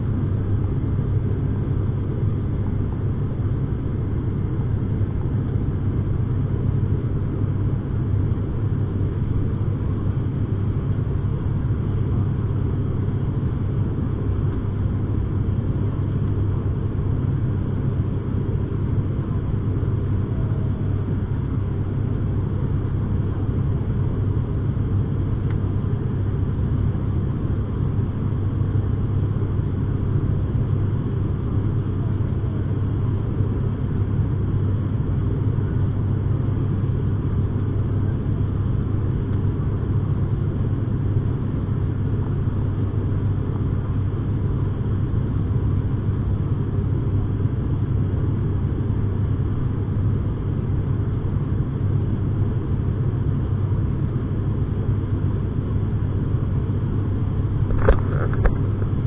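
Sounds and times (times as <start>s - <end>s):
turboprop engines droning: 0.0s - 59.0s.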